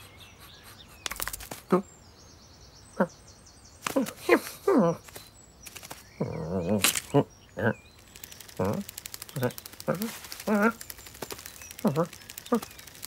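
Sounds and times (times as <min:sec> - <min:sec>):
faint birdsong: 0:00.0 - 0:13.0
vocal noises falling in pitch: 0:06.4 - 0:13.0.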